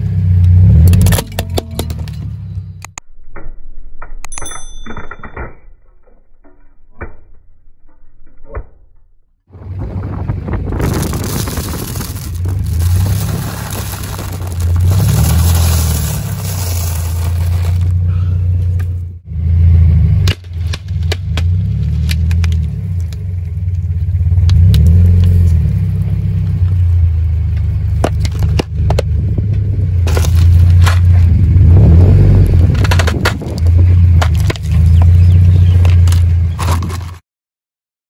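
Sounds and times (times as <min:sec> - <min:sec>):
car low rumble: 0:00.0 - 0:04.3, 0:05.8 - 0:37.2
plastic bottles cracking: 0:10.8 - 0:18.0, 0:30.1 - 0:31.3, 0:32.7 - 0:37.2
tyre crunching dry noodles: 0:10.8 - 0:18.0, 0:30.1 - 0:31.3.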